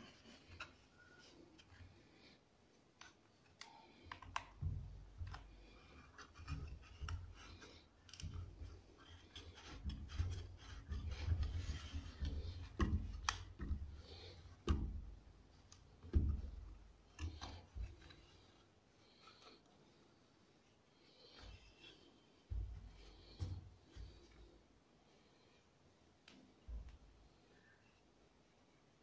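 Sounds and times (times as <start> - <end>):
wood and plastic clicks and knocks: 3.0 - 18.4.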